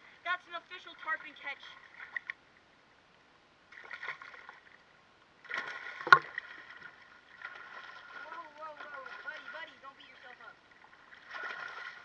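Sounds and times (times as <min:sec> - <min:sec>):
water splashing around legs: 0:05.4 - 0:12.0.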